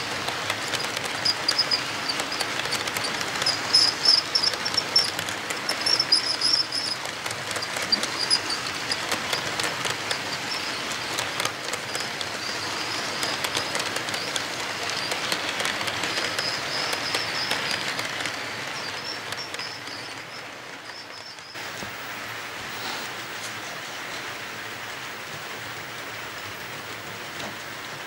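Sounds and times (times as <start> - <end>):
wheels clicking over rail joints: 0.0 - 22.0
model train cars rolling: 0.0 - 28.0.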